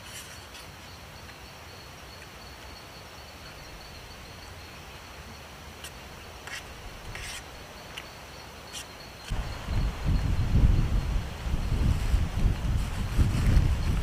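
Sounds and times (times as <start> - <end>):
high insect whine: 0.0 - 14.0
wind buffeting microphone: 9.3 - 14.0.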